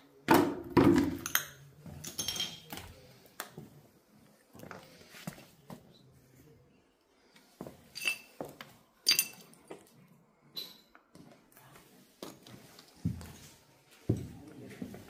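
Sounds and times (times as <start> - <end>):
ceramic shards clinking: 1.2 - 2.7, 8.0 - 9.6.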